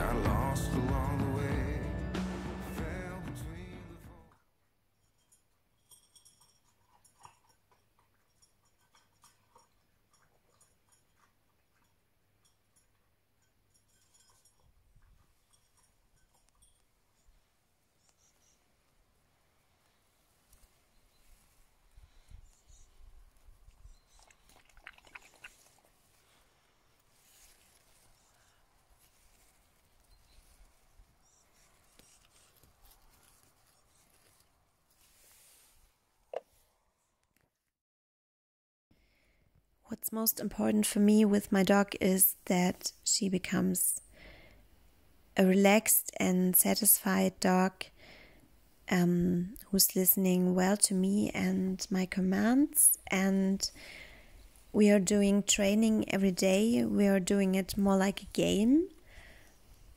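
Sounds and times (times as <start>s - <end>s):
puppy crunching kibble in metal bowl: 5.2s - 16.9s, 23.8s - 26.6s
faint high chirps: 18.0s - 18.7s
rustling of leaves: 25.5s - 36.0s.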